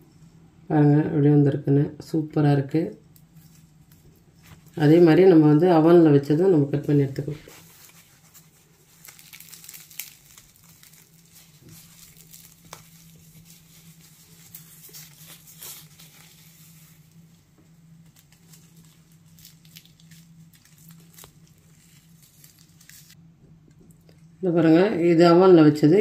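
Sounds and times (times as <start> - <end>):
low steady hum: 0.0 - 26.0
pastry crackling as torn: 7.5 - 23.2.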